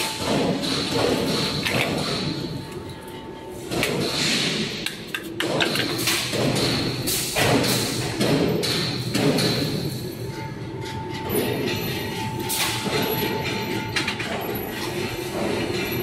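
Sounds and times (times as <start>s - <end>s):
heavy machine knocks and thumps: 5.4s - 10.0s.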